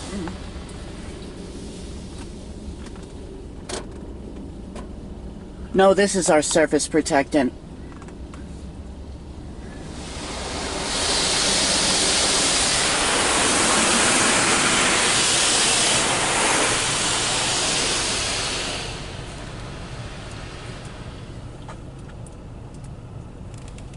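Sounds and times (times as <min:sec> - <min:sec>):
water spray on car roof: 0:00.0 - 0:02.8, 0:09.8 - 0:21.9.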